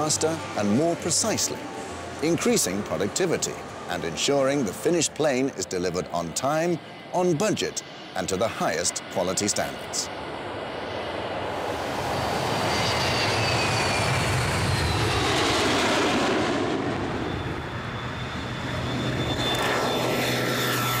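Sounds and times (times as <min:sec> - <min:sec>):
jet engines whining past: 0:00.0 - 0:21.0
propeller plane drone: 0:00.0 - 0:21.0.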